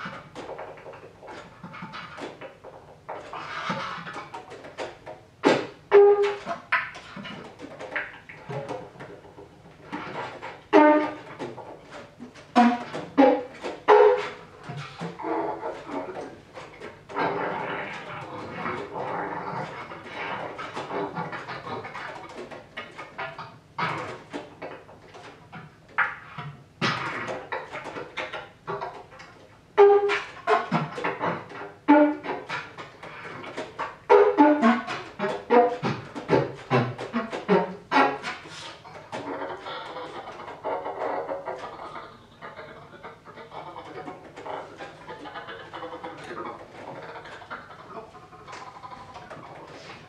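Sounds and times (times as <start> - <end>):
bass clarinet notes: 3.6 - 8.8, 9.9 - 22.5, 29.7 - 50.0
bass clarinet noisy bursts: 5.4 - 6.7, 9.9 - 15.8, 29.8 - 32.8, 34.1 - 42.1
bass clarinet pitched notes: 5.4 - 7.3, 10.0 - 15.8, 29.8 - 32.8, 34.0 - 38.4.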